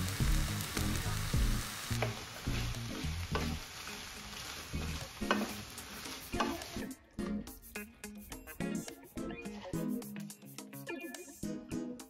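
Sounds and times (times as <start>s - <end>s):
stir-fry sizzling in a pan: 0.0s - 10.3s
faint background music: 0.1s - 12.0s
utensil clicking against pan: 5.2s - 6.7s.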